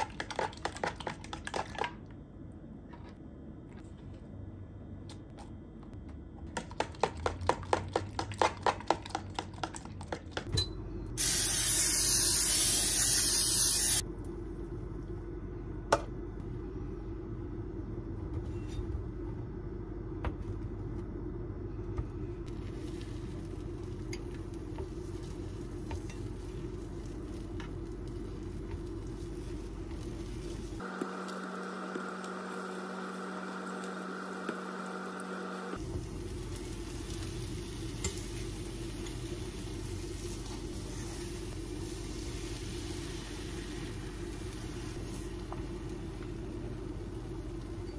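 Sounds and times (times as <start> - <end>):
loud hiss: 11.2 - 14.0
steady low hum: 14.0 - 47.9.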